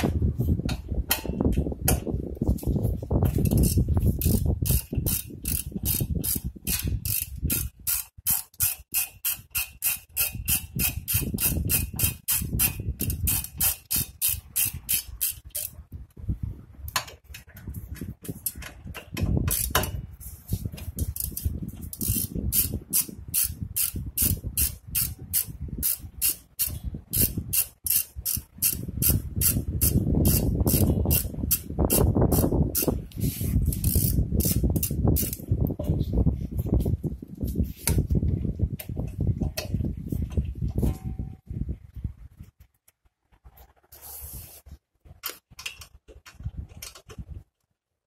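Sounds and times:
socket ratchet clicking: 3.5 - 15.7, 19.5 - 19.9, 21.2 - 33.0, 33.7 - 35.4.

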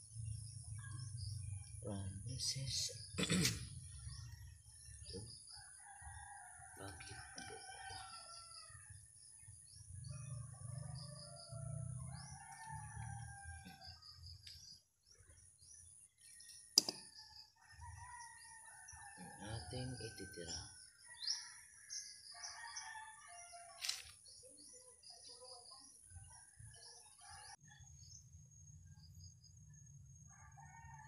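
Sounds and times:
rooster crowing: 5.6 - 8.9, 10.2 - 14.2, 21.0 - 24.0, 30.3 - 31.0.

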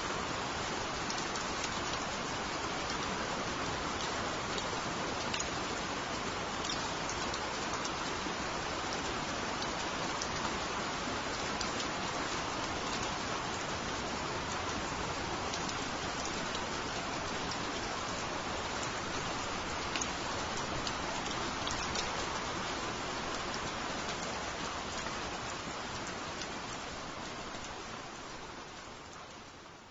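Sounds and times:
steady rain hiss: 0.0 - 29.9
raindrop ticks: 1.0 - 1.8, 4.0 - 5.6, 6.6 - 8.1, 15.4 - 18.2, 19.6 - 22.5, 23.3 - 26.8.

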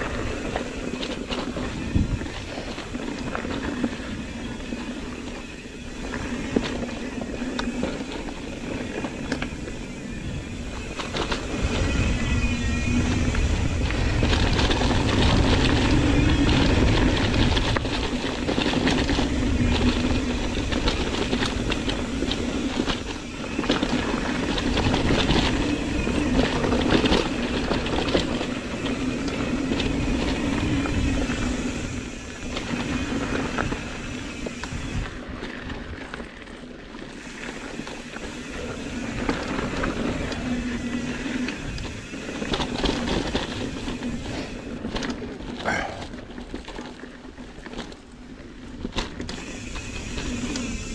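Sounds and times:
wind on microphone: 0.0 - 5.0
bike rattling and knocking: 0.0 - 50.9.

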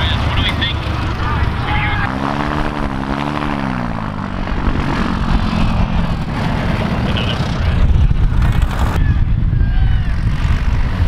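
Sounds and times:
propeller plane engine drone: 0.0 - 11.0.

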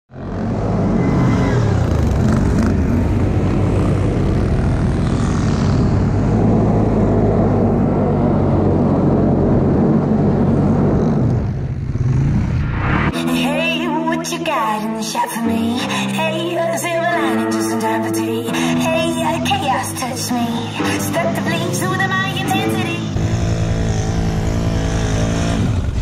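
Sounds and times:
atv engine running: 0.1 - 12.6, 18.5 - 26.0.

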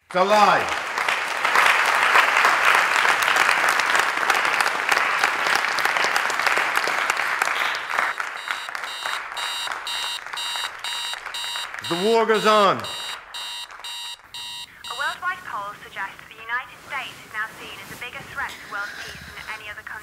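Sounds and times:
people applauding: 0.0 - 14.7
electronic alarm beeping: 8.1 - 15.2.

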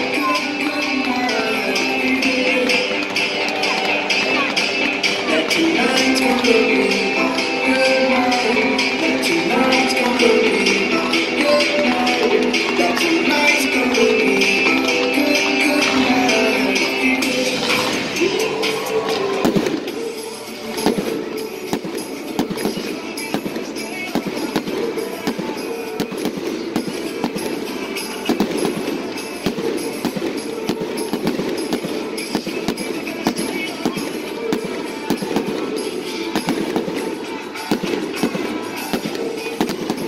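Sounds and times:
background music: 0.0 - 40.0
fireworks bangs and crackles: 19.0 - 40.0.

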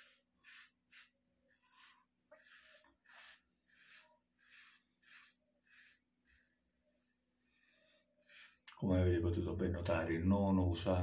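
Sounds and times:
razor scraping stubble: 0.0 - 8.8.

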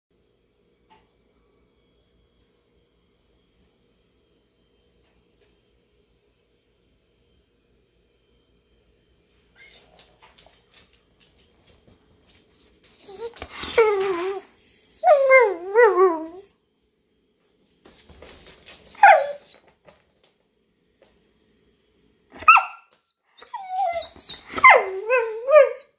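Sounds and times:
dog whining and vocalizing: 9.6 - 10.1, 13.0 - 16.5, 18.8 - 19.6, 22.4 - 25.9.

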